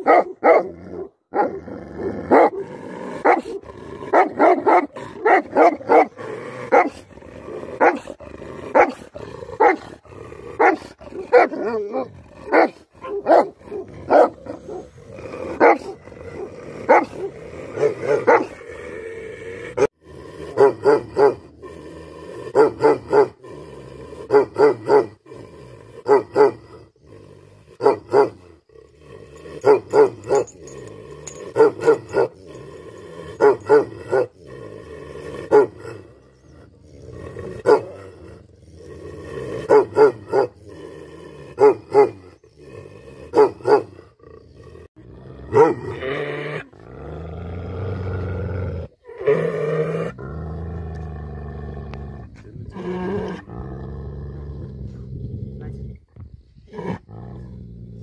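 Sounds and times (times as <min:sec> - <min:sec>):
dog barking deeply: 0:00.0 - 0:07.0, 0:07.8 - 0:10.0, 0:10.6 - 0:18.6, 0:20.5 - 0:21.5, 0:22.5 - 0:23.4, 0:24.2 - 0:25.2, 0:26.0 - 0:26.6, 0:27.8 - 0:28.4, 0:35.4 - 0:36.0, 0:37.6 - 0:38.1, 0:39.6 - 0:40.6, 0:41.5 - 0:42.3, 0:43.3 - 0:44.0, 0:45.5 - 0:46.0.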